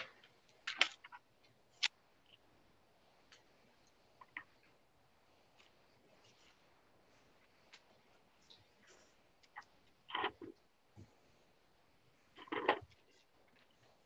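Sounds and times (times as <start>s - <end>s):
background hiss: 0.0s - 14.0s
faint clicks and taps: 3.2s - 4.8s, 5.5s - 6.7s, 7.3s - 11.2s.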